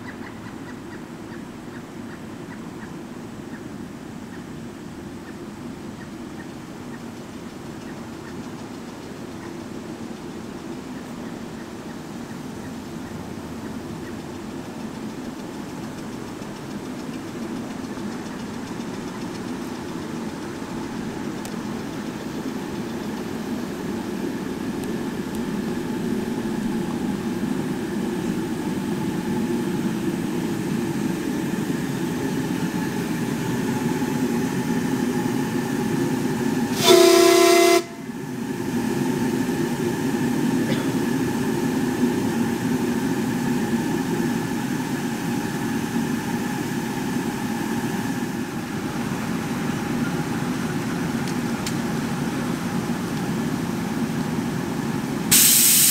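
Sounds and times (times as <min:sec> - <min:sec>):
low engine hum: 0:00.0 - 0:55.4
steam whistle blast: 0:36.6 - 0:38.1, 0:55.3 - 0:55.9.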